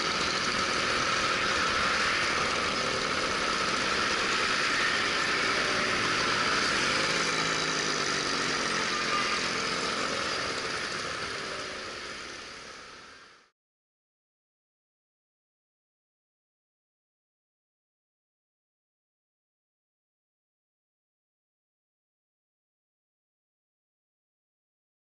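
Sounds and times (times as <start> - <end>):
scooter engine running: 0.0 - 13.4.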